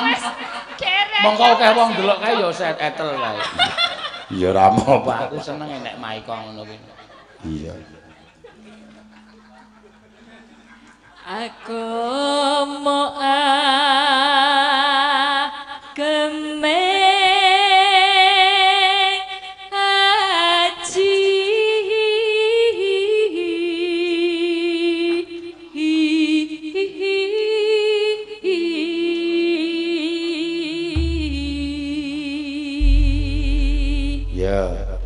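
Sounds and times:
woman singing into a microphone: 0:11.2 - 0:34.3
deep low sound: 0:31.0 - 0:35.0.

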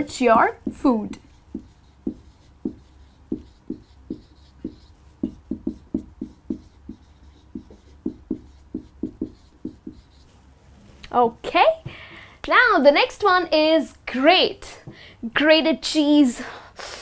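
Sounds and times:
marker squeaking on whiteboard: 0:00.4 - 0:10.3.

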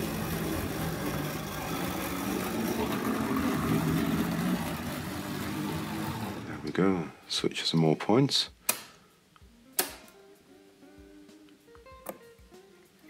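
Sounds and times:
model train motor humming: 0:00.0 - 0:06.7.

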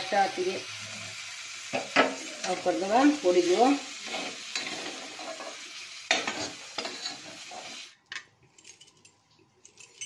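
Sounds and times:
paste sizzling in oil: 0:00.0 - 0:08.0
metal spatula scraping a pan: 0:03.4 - 0:07.9.

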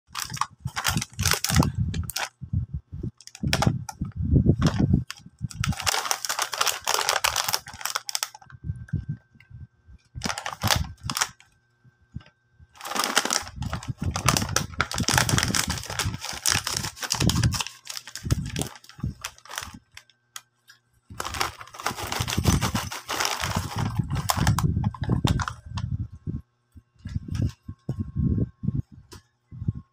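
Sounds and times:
plastic snack bag crinkling: 0:00.1 - 0:02.3, 0:03.2 - 0:04.0, 0:04.6 - 0:08.5, 0:10.2 - 0:11.5, 0:12.8 - 0:20.5, 0:21.1 - 0:25.6
snacks rattling into ceramic bowl: 0:05.6 - 0:08.3, 0:21.2 - 0:24.5.

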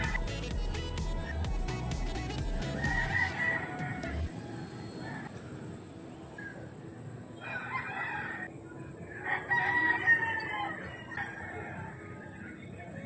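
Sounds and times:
rooster crowing: 0:02.6 - 0:05.4, 0:07.4 - 0:13.0.

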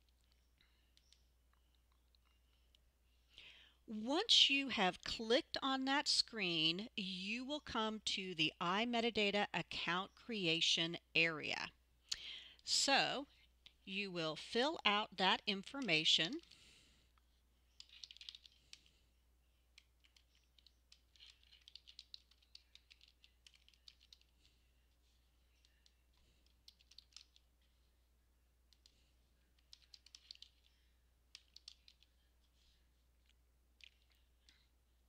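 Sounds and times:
faint keyboard typing: 0:00.0 - 0:04.3, 0:12.1 - 0:28.0, 0:28.6 - 0:35.0.

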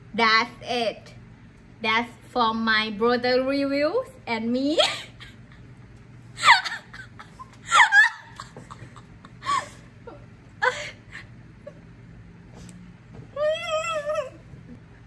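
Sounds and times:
high-pitched vocal squeals: 0:13.4 - 0:14.4.

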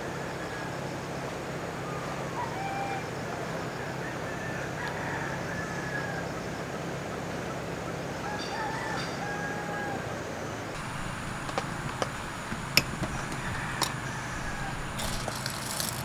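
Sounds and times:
rooster crowing: 0:03.8 - 0:06.4, 0:08.2 - 0:10.2, 0:11.7 - 0:16.0
outdoor hiss: 0:10.6 - 0:16.0.

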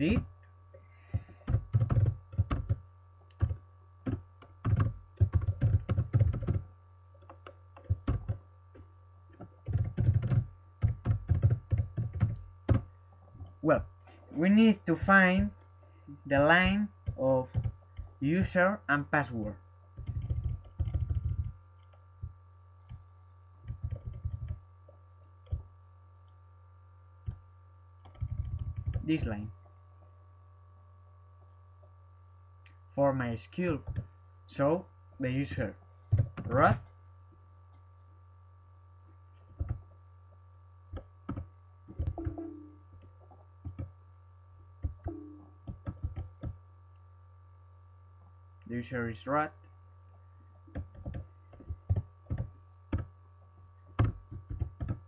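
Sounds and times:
low electrical hum: 0:00.0 - 0:55.0
keyboard keystrokes: 0:01.1 - 0:06.6, 0:07.2 - 0:08.4, 0:09.4 - 0:12.8, 0:16.4 - 0:18.6, 0:20.0 - 0:21.5, 0:23.6 - 0:24.6, 0:44.8 - 0:46.6, 0:50.7 - 0:53.1, 0:54.0 - 0:55.0.

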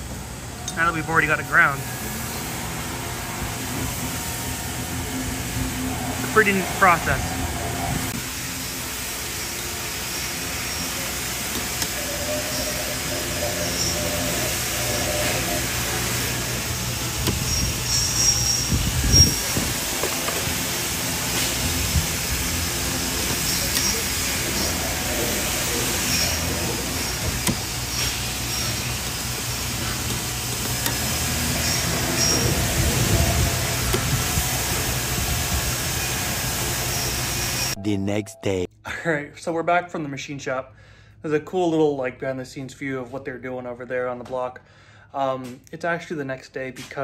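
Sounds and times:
machinery humming and hissing: 0:00.0 - 0:37.8.

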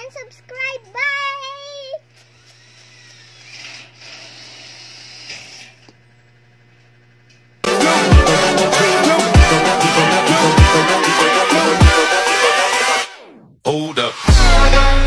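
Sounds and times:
girl's high-pitched voice: 0:00.0 - 0:02.1.

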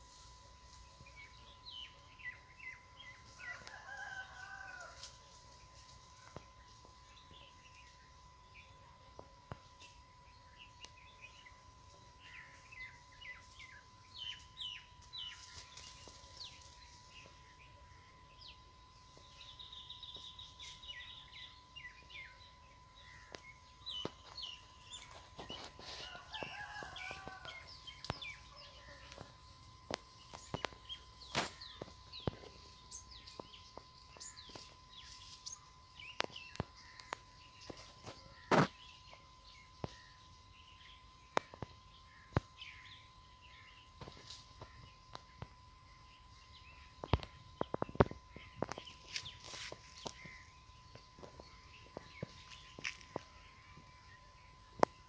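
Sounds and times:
faint steady high tone: 0:00.0 - 0:55.0
rooster crowing: 0:03.3 - 0:05.4, 0:24.3 - 0:29.3
small birds chirping: 0:06.1 - 0:55.0.

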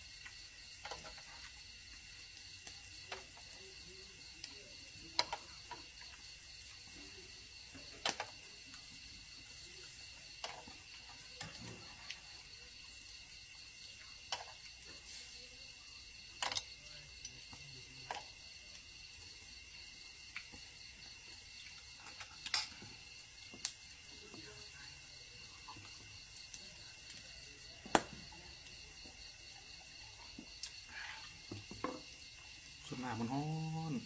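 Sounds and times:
insects chirring: 0:00.0 - 0:34.0
metal tongs clinking on grill pan: 0:22.0 - 0:22.8.

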